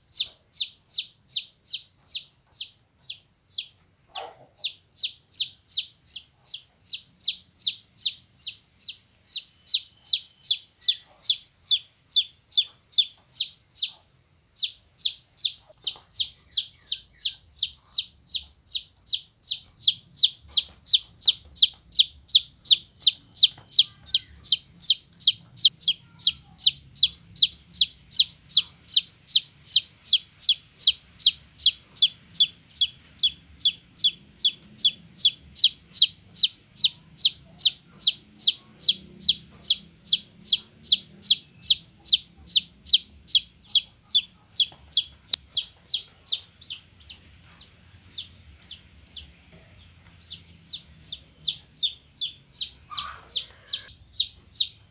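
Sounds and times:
chick peeping: 0:00.0 - 0:54.9.

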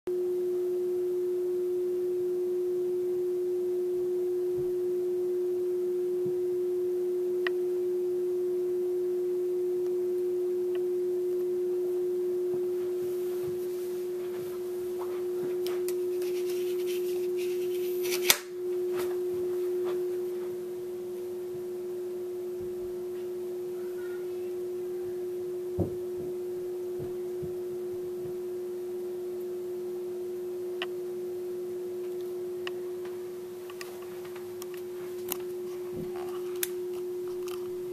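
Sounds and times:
electrical hum: 0:00.1 - 0:37.9
sharp click: 0:18.1 - 0:18.5.

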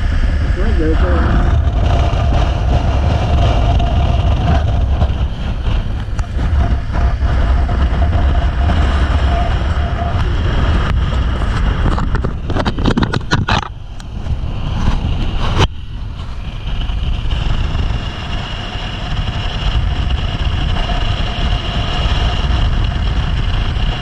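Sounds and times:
motorcycle engine: 0:00.0 - 0:24.0
wind rumble on microphone: 0:00.0 - 0:24.0.

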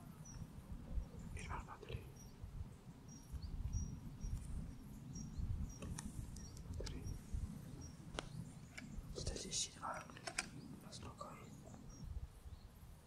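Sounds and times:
soft clicks: 0:05.8 - 0:07.1, 0:08.2 - 0:09.3, 0:10.0 - 0:11.8.

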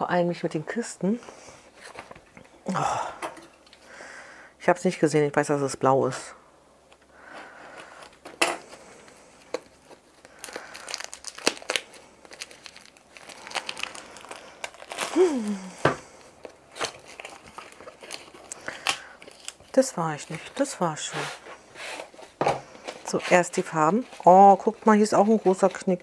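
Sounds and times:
plastic film crinkling and tearing: 0:07.6 - 0:26.0.

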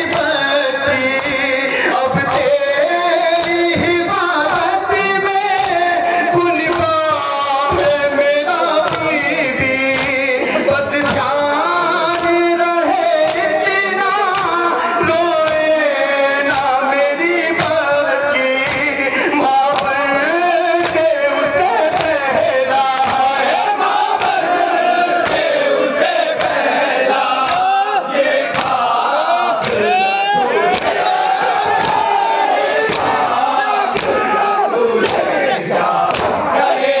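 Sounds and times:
men chanting over microphone: 0:00.0 - 0:37.0
hand slaps on chest: 0:08.8 - 0:09.1, 0:09.9 - 0:10.2, 0:11.0 - 0:11.3, 0:12.1 - 0:12.4, 0:18.6 - 0:18.9, 0:19.7 - 0:20.0, 0:20.8 - 0:21.0, 0:25.2 - 0:25.5, 0:28.5 - 0:28.8, 0:29.6 - 0:29.8, 0:30.7 - 0:31.0, 0:31.7 - 0:32.1, 0:32.9 - 0:33.2, 0:33.9 - 0:34.2, 0:35.0 - 0:35.3, 0:36.1 - 0:36.4.

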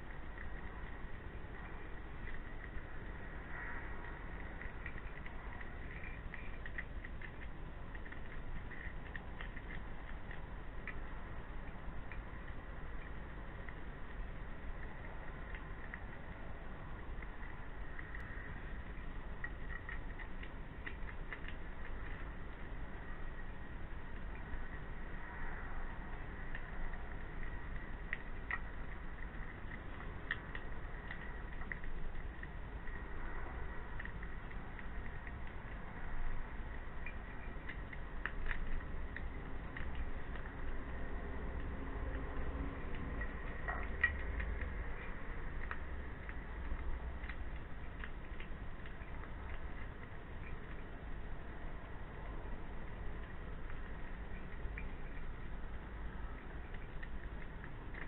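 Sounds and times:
steady low hiss: 0:00.0 - 0:58.0.

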